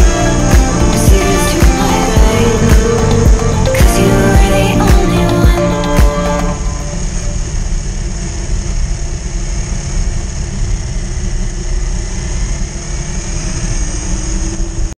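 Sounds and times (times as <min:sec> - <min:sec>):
thin high whine: 0:00.0 - 0:10.6.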